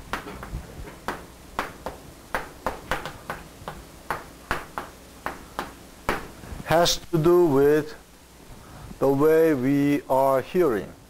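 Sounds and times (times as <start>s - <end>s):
chalk tapping on blackboard: 0.1s - 6.4s.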